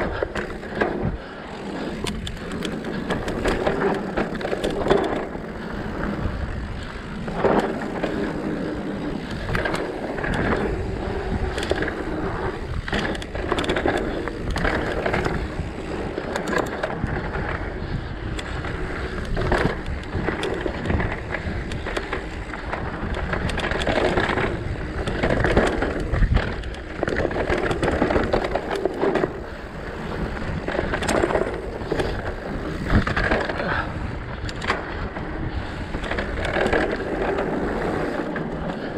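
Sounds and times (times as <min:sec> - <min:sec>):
bike rattling and knocking: 0:00.0 - 0:38.9
tyres on dirt and rocks: 0:00.0 - 0:38.9.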